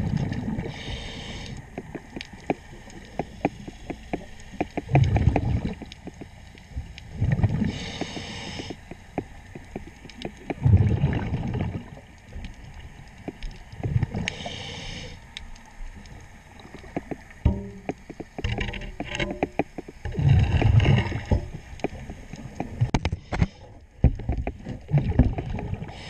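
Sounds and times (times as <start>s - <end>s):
exhaled bubbles rumbling: 0.0s - 1.0s, 4.7s - 6.1s, 6.7s - 14.4s, 16.2s - 23.0s, 24.0s - 26.0s
regulator hissing inhalation: 0.7s - 1.6s, 7.7s - 8.9s, 14.3s - 15.2s.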